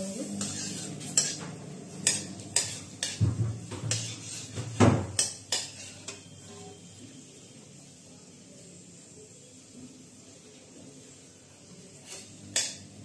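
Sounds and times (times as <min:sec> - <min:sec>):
spatula scraping metal pan: 0:00.0 - 0:07.0, 0:12.0 - 0:12.8.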